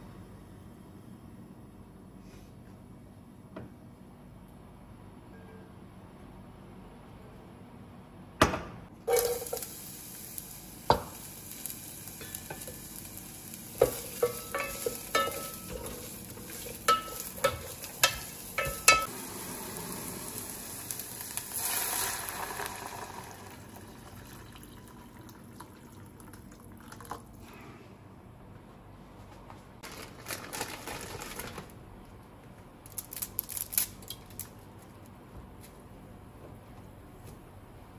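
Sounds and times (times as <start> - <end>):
onion sizzling in oil: 9.0 - 24.5
water hissing on hot pan: 9.1 - 24.4.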